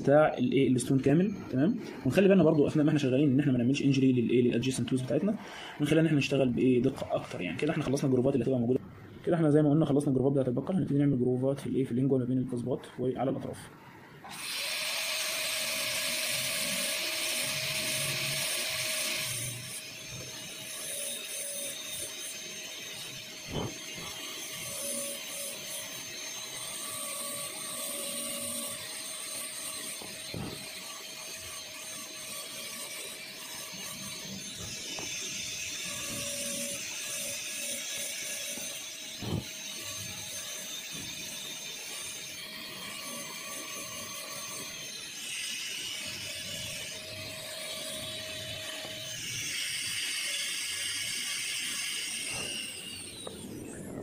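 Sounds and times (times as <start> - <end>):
dental drill whining and grinding: 14.2 - 54.0.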